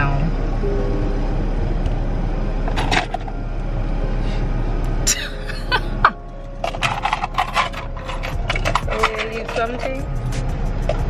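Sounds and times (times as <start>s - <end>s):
car hum: 0.0s - 11.0s
woman laughing: 5.1s - 6.2s.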